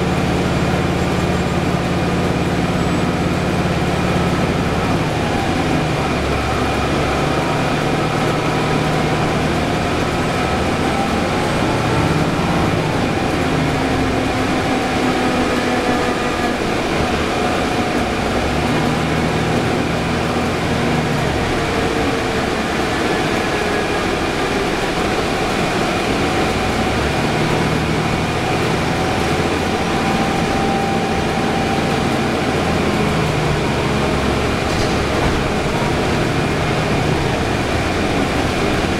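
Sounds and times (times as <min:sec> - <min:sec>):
bus road noise: 0:00.0 - 0:38.9
low engine hum: 0:00.0 - 0:38.9
whines drifting in pitch: 0:00.0 - 0:38.9.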